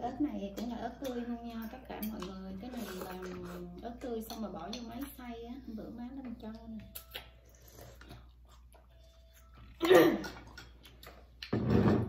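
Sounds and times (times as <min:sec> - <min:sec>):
cutlery clicking on bowls: 0:00.5 - 0:03.4, 0:04.0 - 0:05.2, 0:10.2 - 0:11.2.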